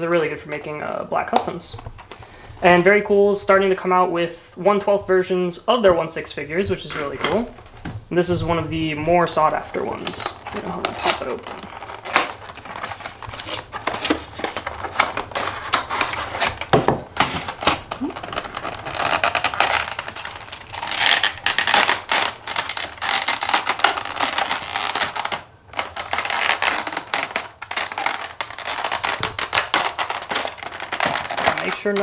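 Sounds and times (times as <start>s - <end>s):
plastic blister tray crackling: 6.6s - 32.0s.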